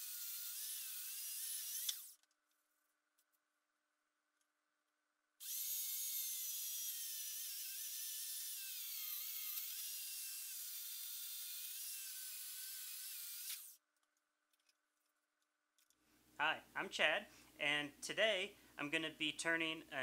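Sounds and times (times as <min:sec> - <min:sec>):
electric chainsaw cutting log: 0:00.0 - 0:02.2, 0:05.4 - 0:13.8.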